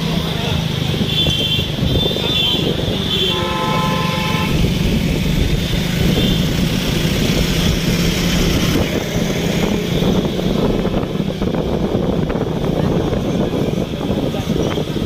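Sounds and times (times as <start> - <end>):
road noise: 0.0 - 15.0
vehicle horn: 1.1 - 4.7
motorcycle engine running: 3.8 - 15.0.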